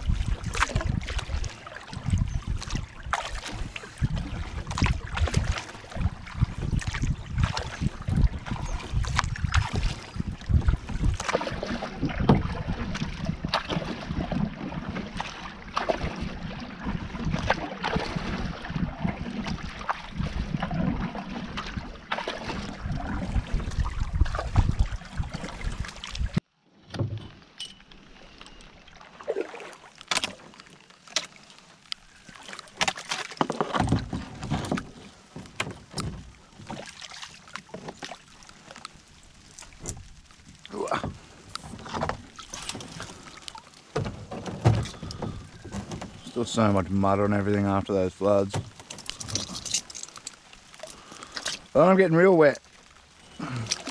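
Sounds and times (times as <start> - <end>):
paddle strokes and splashing: 0.0 - 53.9
paddle clicks: 29.3 - 51.8, 52.6 - 53.9.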